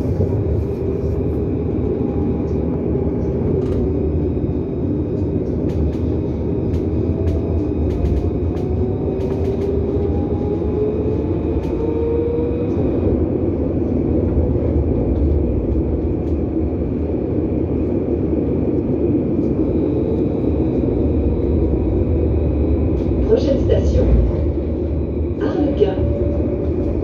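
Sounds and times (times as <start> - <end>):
tram wheels rumbling on rails: 0.0 - 27.0.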